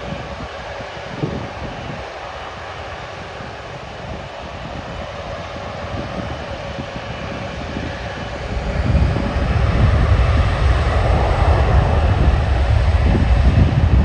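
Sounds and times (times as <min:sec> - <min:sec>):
jet engines roaring: 0:00.0 - 0:14.0
deep rumble: 0:04.5 - 0:14.0.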